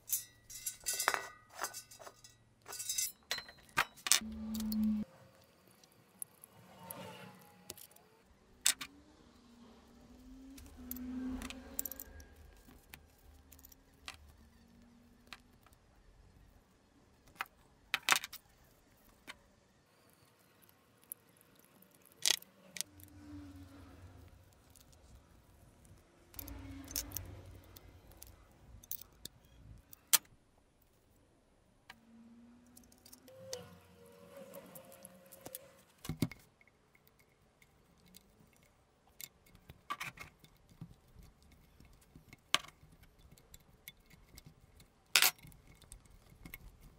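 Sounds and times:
metal fittings clicking and clinking: 0.0 - 4.9, 25.8 - 30.3, 34.5 - 46.9.

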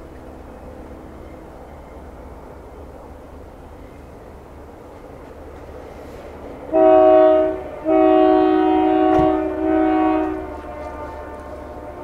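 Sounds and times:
train air horn: 6.7 - 12.0.

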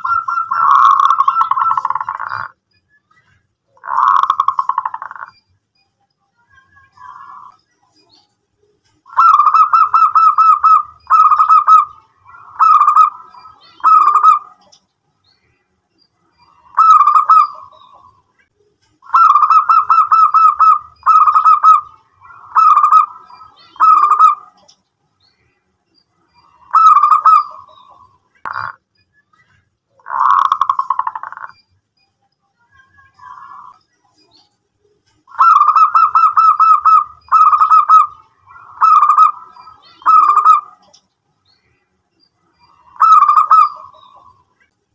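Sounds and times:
dove cooing: 0.0 - 2.5, 3.8 - 5.3, 9.1 - 14.6, 16.6 - 18.2, 19.0 - 24.7, 26.6 - 28.8, 35.3 - 40.9, 42.8 - 44.3.

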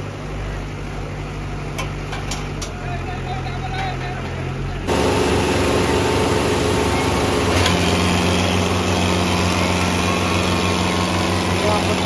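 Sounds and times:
tractor diesel engine under load: 0.0 - 12.0
deeper steady engine tone: 4.5 - 12.0.

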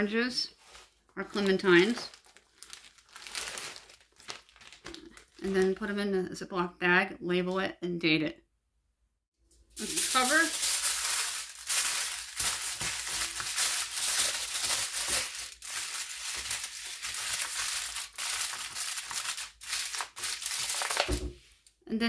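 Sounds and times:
aluminium foil crinkling: 0.5 - 5.9, 9.6 - 21.7.

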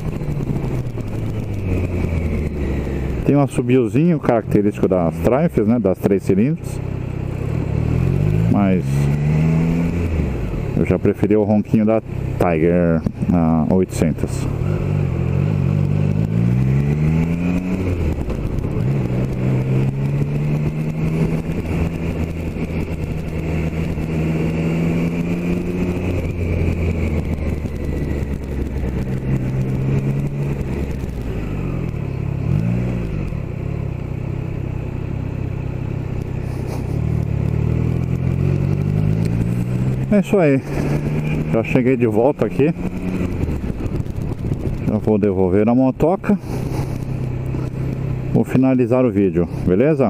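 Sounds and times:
motorcycle engine revving: 0.0 - 50.0.

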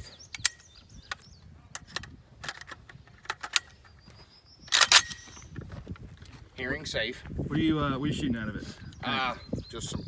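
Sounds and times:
rifle clicks and rattles: 0.3 - 4.0, 4.7 - 6.3.

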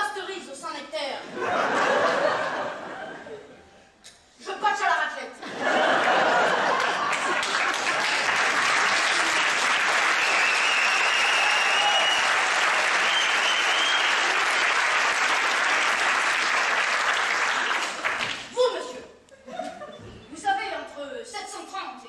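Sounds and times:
audience applauding: 5.7 - 18.6.

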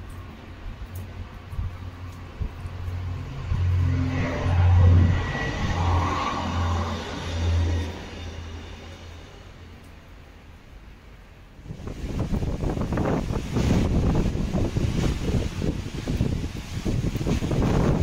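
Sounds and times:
train engine hum passing by: 0.0 - 12.4.

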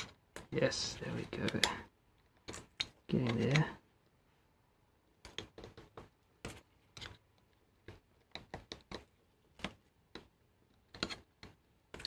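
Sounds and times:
screwdriver clicking and scraping metal: 0.0 - 3.7, 10.7 - 12.0.

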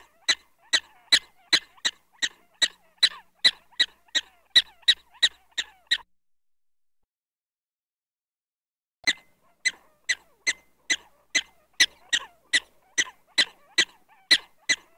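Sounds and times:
prairie dog barking: 0.0 - 6.0, 9.0 - 14.9.

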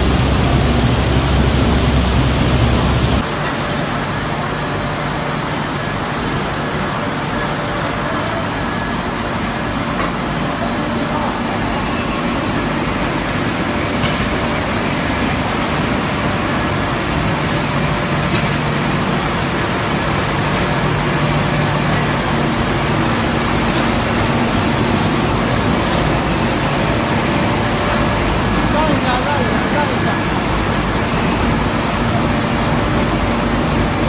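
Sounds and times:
low machine hum: 0.0 - 3.4.

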